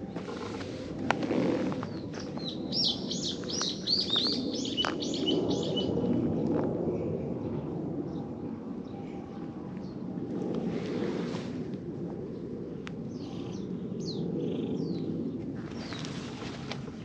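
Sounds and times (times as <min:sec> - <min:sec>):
outdoor background noise: 0:00.0 - 0:17.0
bird chirping: 0:01.9 - 0:05.9.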